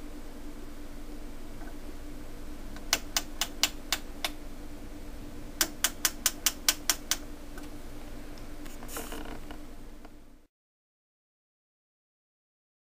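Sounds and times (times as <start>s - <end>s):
faint steady hum: 0.0s - 10.5s
rotary switch clicking: 2.8s - 4.4s, 5.6s - 7.7s.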